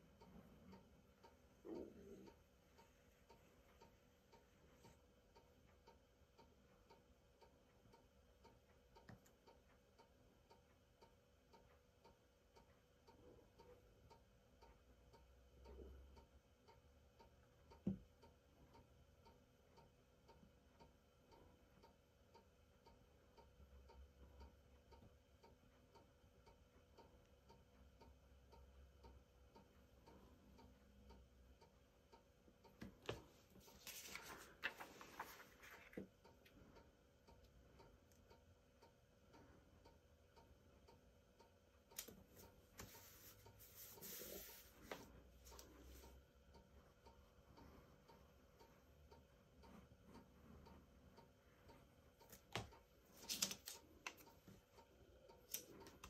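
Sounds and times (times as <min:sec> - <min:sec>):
faint regular ticking: 0:00.0 - 0:56.0
paper crinkling: 0:33.8 - 0:35.9.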